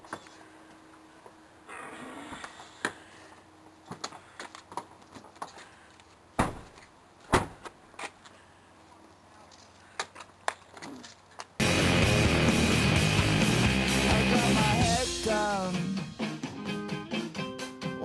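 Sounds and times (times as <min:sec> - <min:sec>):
car doors slamming shut: 0:06.4 - 0:06.7, 0:07.3 - 0:07.6.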